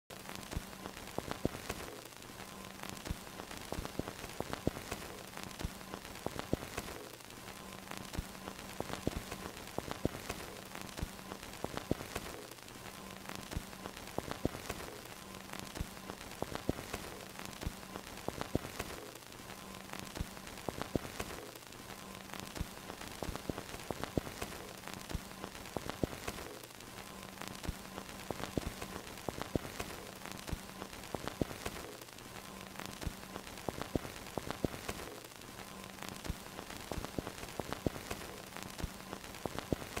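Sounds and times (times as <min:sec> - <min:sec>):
film crackle and hiss: 0:00.1 - 0:40.0.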